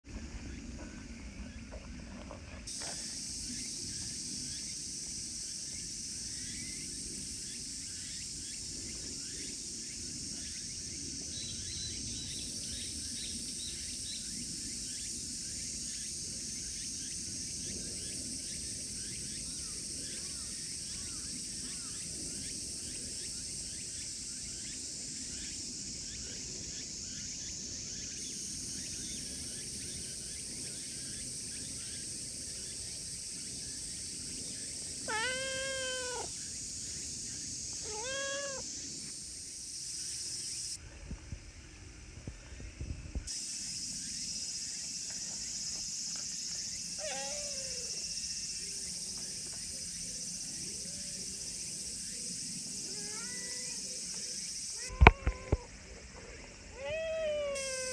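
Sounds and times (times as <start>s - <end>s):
steady high hiss: 2.7s - 57.9s
cat meowing: 35.1s - 36.3s, 37.8s - 38.6s, 47.0s - 47.9s, 52.9s - 53.8s, 54.8s - 55.7s, 56.8s - 57.9s.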